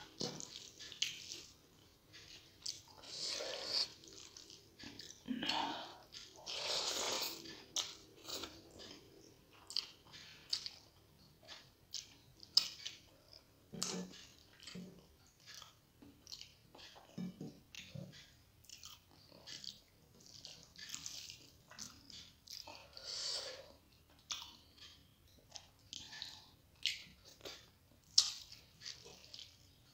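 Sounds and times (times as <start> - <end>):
wet chewing and lip smacks: 0.1 - 5.2, 6.0 - 23.0, 23.8 - 29.8.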